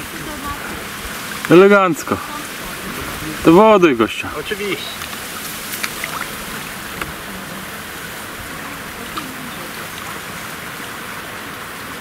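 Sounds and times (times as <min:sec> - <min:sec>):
water lapping and trickling: 0:00.0 - 0:12.0
small splashes: 0:04.3 - 0:12.0.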